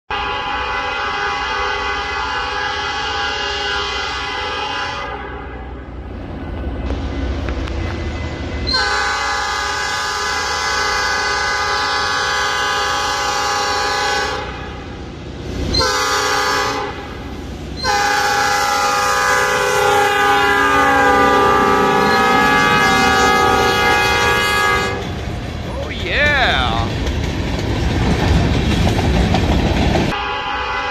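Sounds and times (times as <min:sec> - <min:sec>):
locomotive horn blasts: 0:00.1 - 0:05.6, 0:08.7 - 0:14.7, 0:15.8 - 0:17.1, 0:17.8 - 0:25.0, 0:30.1 - 0:30.9
train rumble: 0:05.7 - 0:30.6
wheels clattering on rails: 0:26.7 - 0:30.2.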